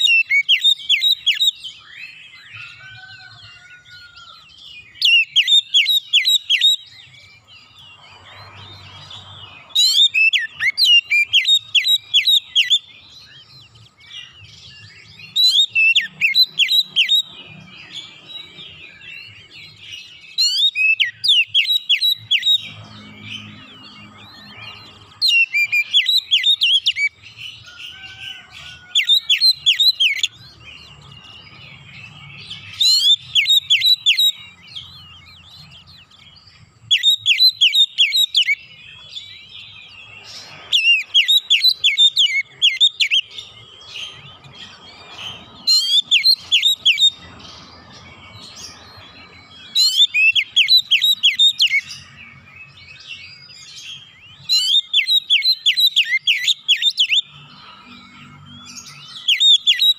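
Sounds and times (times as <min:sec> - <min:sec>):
bird singing sharp repeated notes: 0:00.0 - 0:03.3, 0:04.5 - 0:59.9
soft bird twittering: 0:00.0 - 0:59.9.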